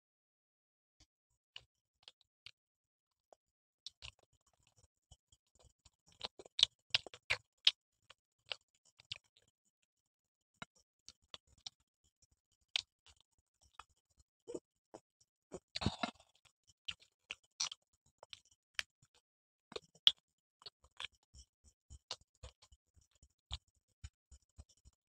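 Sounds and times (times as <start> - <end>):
crunchy bites and chewing: 15.5 - 17.0.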